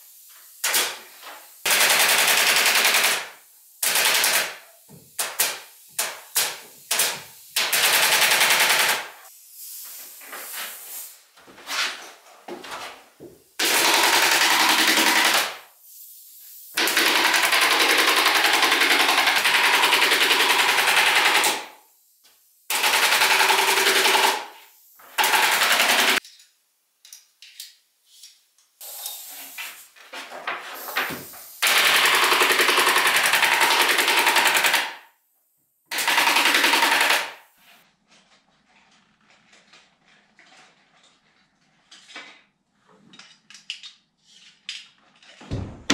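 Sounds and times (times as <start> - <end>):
pneumatic stapler firing: 0.6 - 1.0.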